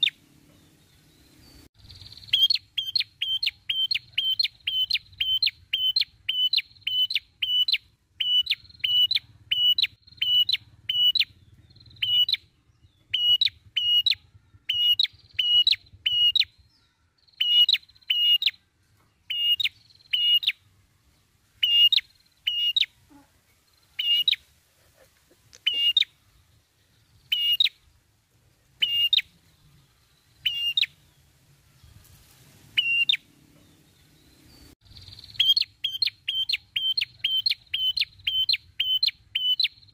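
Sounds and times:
bird chirping: 0.0 - 39.9.

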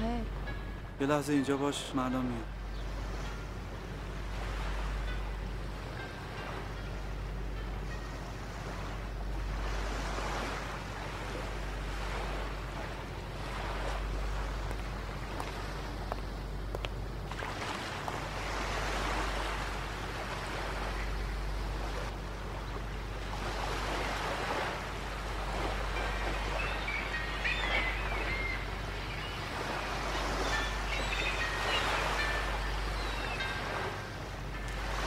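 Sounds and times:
steady low rumble: 2.2 - 23.9
sea waves breaking on beach: 8.2 - 35.0.

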